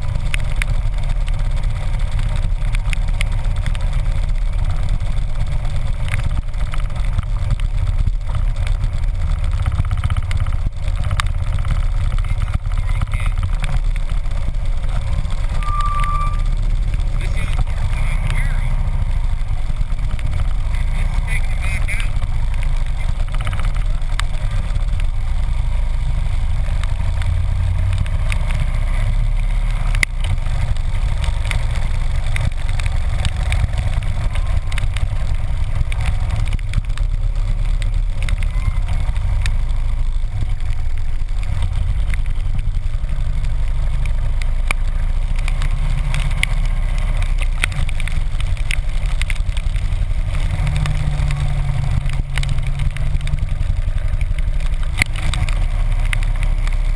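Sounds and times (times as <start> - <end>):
motorcycle engine running: 0.0 - 56.9
wind and tyre spray hiss: 16.4 - 56.9.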